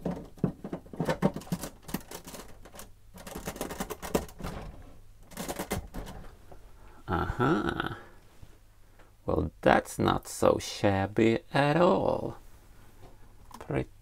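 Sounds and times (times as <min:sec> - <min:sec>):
plastic bricks clicking and rattling: 0:00.0 - 0:04.4, 0:05.3 - 0:06.2.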